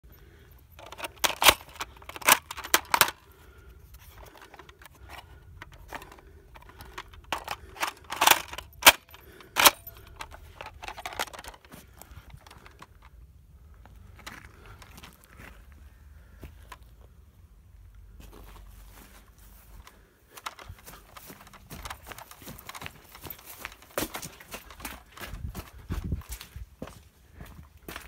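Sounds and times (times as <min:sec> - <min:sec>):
plastic magazine clicks: 0:00.8 - 0:03.2, 0:04.1 - 0:11.7.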